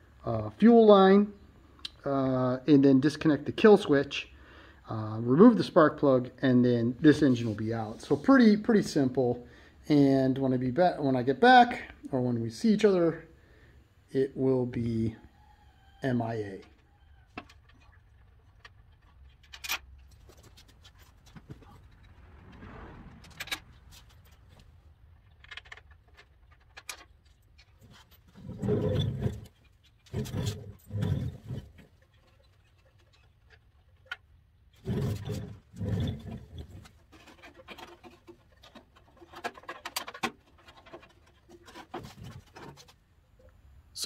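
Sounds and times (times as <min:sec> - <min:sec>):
tools clicking and clanking: 0:17.4 - 0:21.4.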